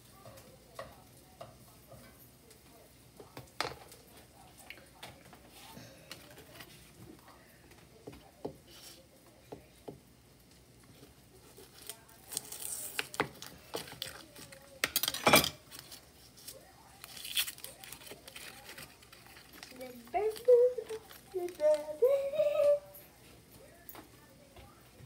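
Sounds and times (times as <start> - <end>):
dishes and utensils clinking: 13.6 - 16.0.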